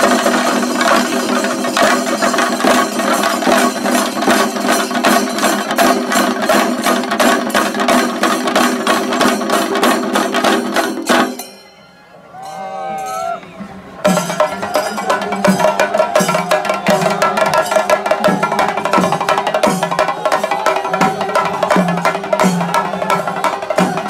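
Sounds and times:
drums beaten with sticks: 0.0s - 11.6s, 13.0s - 24.0s
voices: 11.4s - 24.0s.

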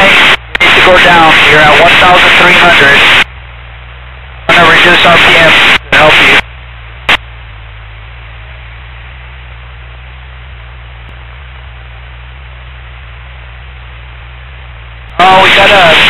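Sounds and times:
static hiss: 0.0s - 8.3s, 12.4s - 16.0s
low hum: 0.0s - 16.0s.

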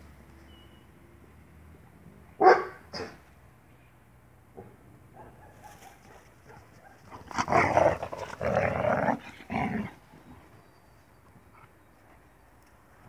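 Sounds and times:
puppies growling: 7.2s - 10.0s.

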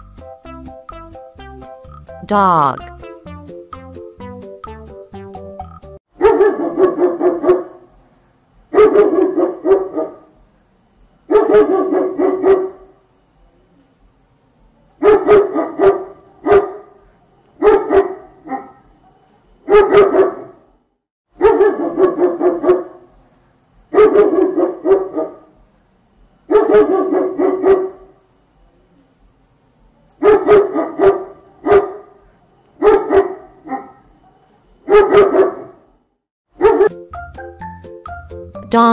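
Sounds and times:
dog barking: 6.2s - 7.9s, 8.7s - 10.3s, 11.3s - 12.9s, 15.0s - 17.0s, 17.6s - 20.7s, 21.4s - 23.1s, 23.9s - 25.6s, 26.5s - 28.2s, 30.2s - 32.2s, 32.8s - 36.0s, 36.6s - 36.9s.

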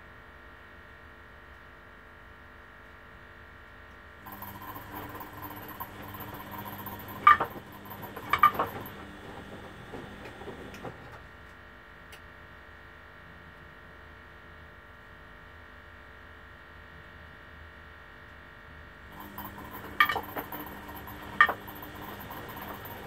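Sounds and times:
washing machine drum motor whine: 4.2s - 11.4s, 19.0s - 23.0s
low steady hum: 4.3s - 11.2s, 19.1s - 23.0s.

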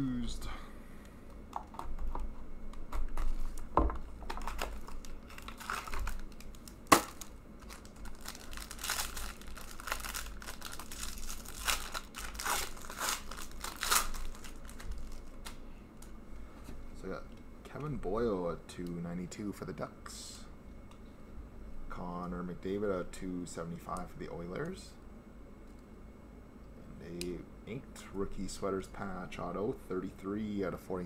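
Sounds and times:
foil pack tearing and crinkling: 4.3s - 15.6s.

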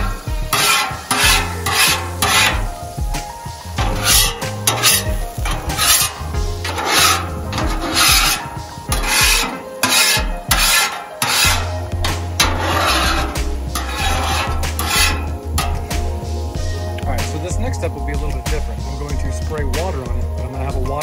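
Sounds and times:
metal scraper on wet griddle: 0.0s - 16.2s.

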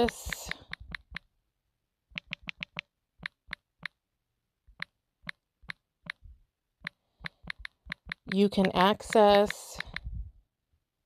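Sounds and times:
phone keyboard clicks: 0.0s - 1.3s, 2.1s - 4.0s, 4.8s - 6.2s, 6.8s - 10.1s.

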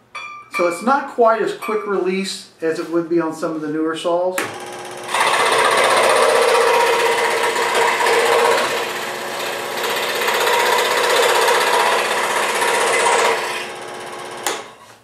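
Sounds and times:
scroll saw cutting wood: 4.4s - 14.8s.

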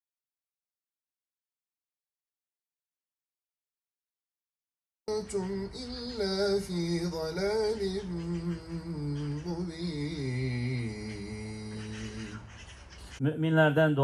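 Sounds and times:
man chanting prayer: 5.1s - 12.5s, 13.2s - 14.0s.

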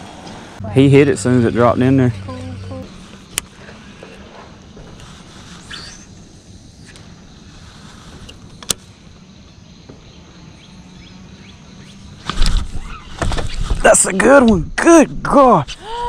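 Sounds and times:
steady low hum: 0.0s - 12.2s
fishing reel being reeled in: 5.2s - 6.1s.

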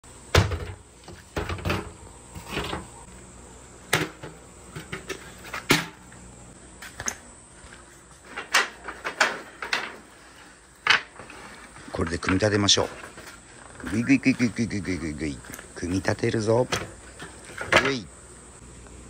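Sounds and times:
knocks and clatters of handling: 7.0s - 13.9s.

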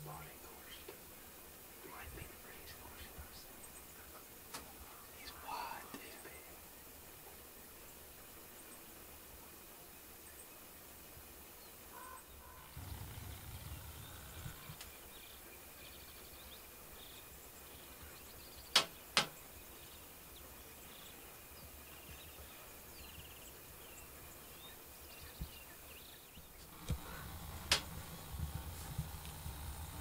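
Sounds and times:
faint bird chirps: 0.0s - 0.9s, 1.9s - 7.0s, 11.4s - 28.8s
sharp clicks: 18.7s - 19.4s, 26.8s - 30.0s.

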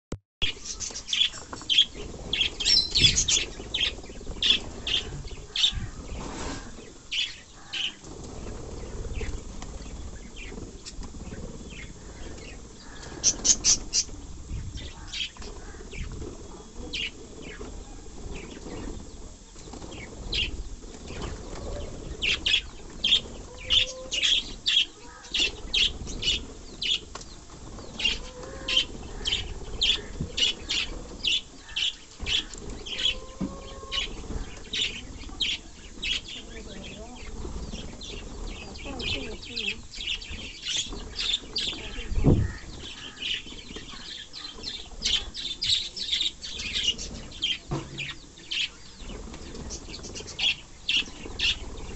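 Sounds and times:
budgerigars chirping: 0.4s - 5.8s
wings flapping: 0.6s - 6.9s, 7.6s - 14.4s, 15.0s - 45.4s, 49.0s - 51.9s.

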